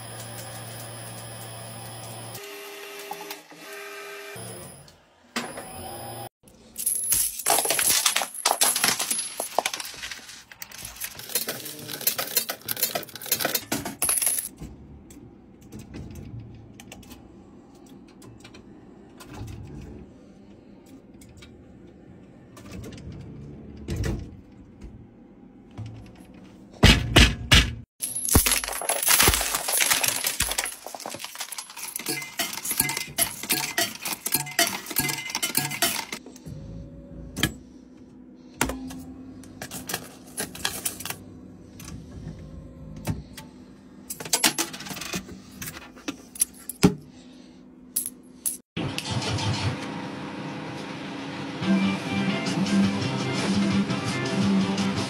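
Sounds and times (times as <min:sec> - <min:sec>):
coins clattering in arcade machines: 0:06.6 - 0:14.6, 0:28.0 - 0:36.2, 0:39.6 - 0:41.2, 0:44.1 - 0:45.3, 0:47.9 - 0:48.7
low mechanical hum: 0:08.7 - 0:54.0.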